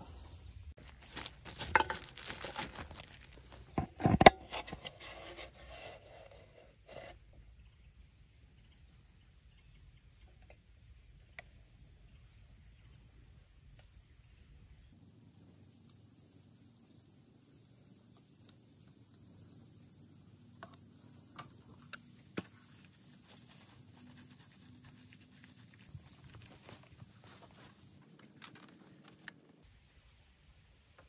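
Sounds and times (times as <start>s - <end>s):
insects chirring: 0.0s - 28.0s, 29.6s - 31.0s
handling clatter and knocks: 0.9s - 4.9s.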